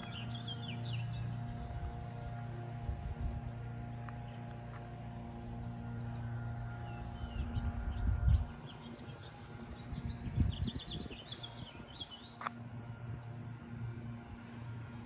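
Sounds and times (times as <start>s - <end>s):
small birds chirping: 0.0s - 5.0s, 5.6s - 13.4s
low rumbling: 0.0s - 14.4s
steady low hum: 0.0s - 15.0s.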